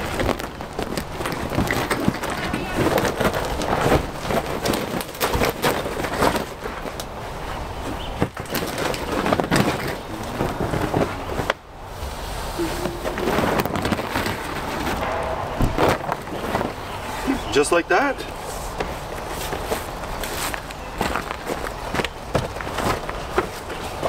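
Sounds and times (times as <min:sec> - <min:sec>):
plastic panels rattling and knocking: 0:00.0 - 0:07.1, 0:08.2 - 0:11.5.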